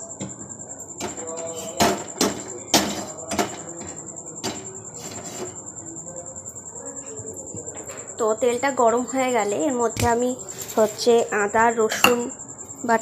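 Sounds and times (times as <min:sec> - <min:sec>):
knocks and clatters of kitchenware: 0:00.2 - 0:05.5, 0:12.0 - 0:12.4.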